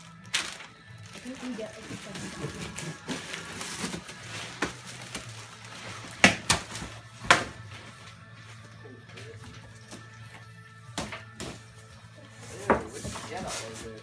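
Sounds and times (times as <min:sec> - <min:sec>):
cardboard box rustling: 0:01.3 - 0:07.0.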